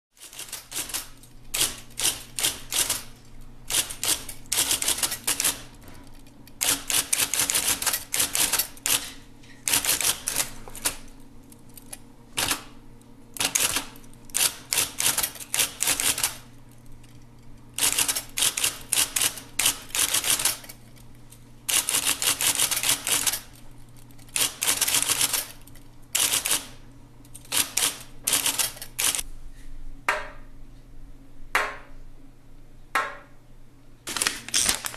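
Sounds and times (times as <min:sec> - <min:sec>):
typewriter keys typing: 0:00.2 - 0:12.8, 0:13.4 - 0:17.2, 0:17.8 - 0:21.0, 0:21.7 - 0:29.2.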